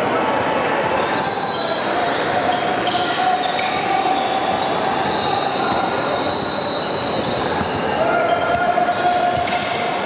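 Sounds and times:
hubbub of players and spectators: 0.0 - 10.0
basketball bouncing on court: 7.1 - 9.7.

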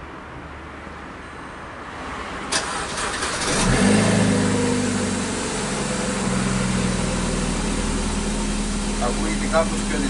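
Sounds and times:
car engine idling: 2.6 - 10.0.

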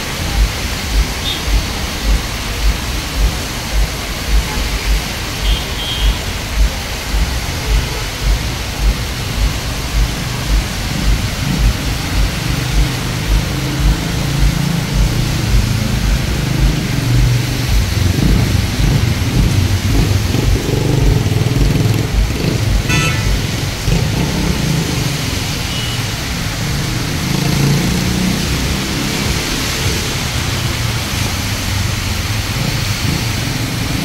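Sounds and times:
cars passing on wet street: 0.0 - 34.0
rain hissing: 0.0 - 34.0
low thumps: 6.6 - 24.2.

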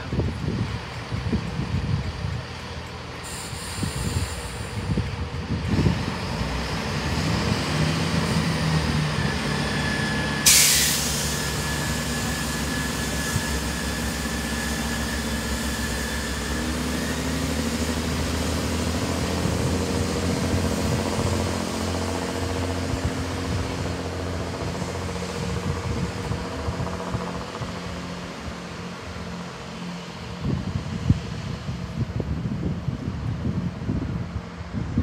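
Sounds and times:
diesel train engines: 0.0 - 35.0
loud air hiss: 3.2 - 5.1, 10.3 - 17.0
steady high tone: 8.2 - 18.2.

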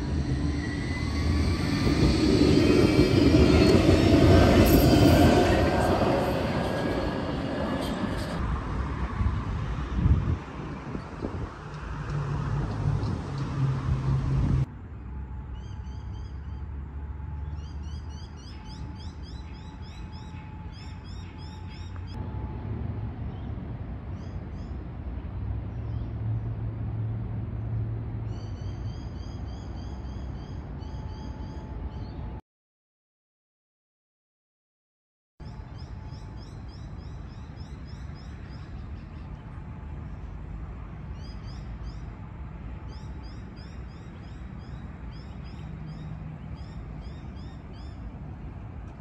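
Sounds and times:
tram running past: 0.0 - 17.6, 18.4 - 28.2.

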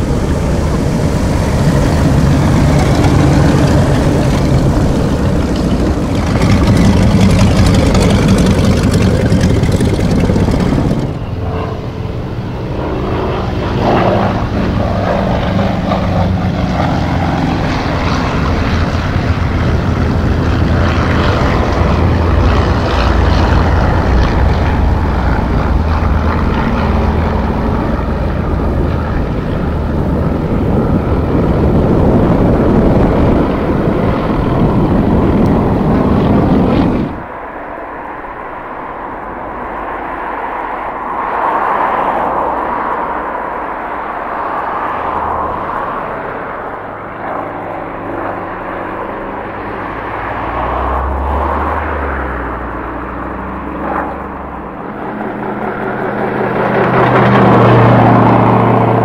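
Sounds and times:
propeller aircraft engines running: 0.0 - 59.0.

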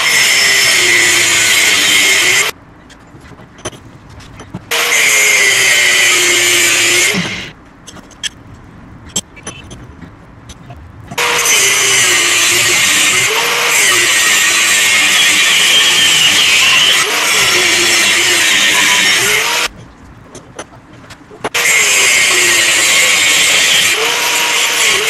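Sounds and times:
angle grinder cutting steel: 0.0 - 2.5, 4.6 - 7.5, 11.1 - 19.7, 21.6 - 25.0
scattered clicks and taps: 2.8 - 4.7, 7.2 - 11.3, 19.7 - 21.6.

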